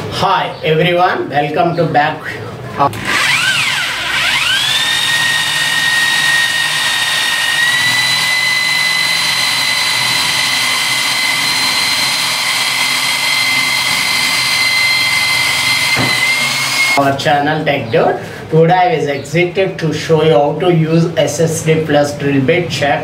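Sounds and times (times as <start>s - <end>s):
rotary hammer drilling into wood: 2.9s - 17.0s.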